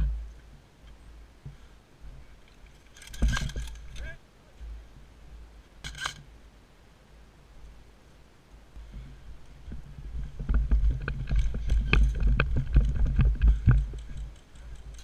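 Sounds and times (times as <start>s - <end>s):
rifle and kit rattling: 2.4s - 4.2s, 5.8s - 6.2s, 10.3s - 15.0s.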